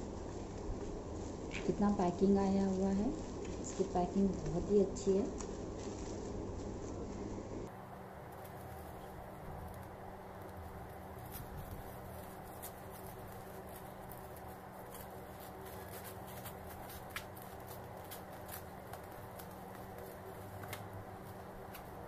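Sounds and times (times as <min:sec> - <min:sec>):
scissors snipping plastic: 0:09.7 - 0:22.0.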